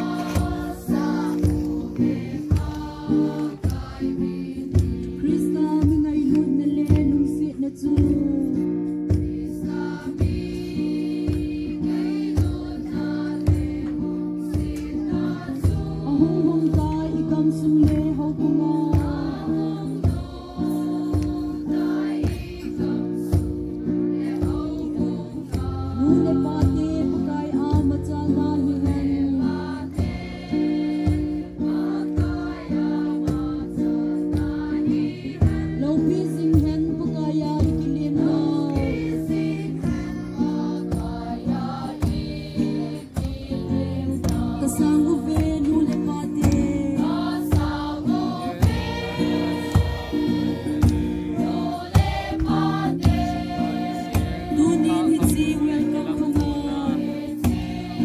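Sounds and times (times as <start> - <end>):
group singing a church song: 0.0 - 5.9, 8.5 - 58.0
steady drum beat: 0.0 - 58.0
sustained accompaniment: 37.6 - 58.0.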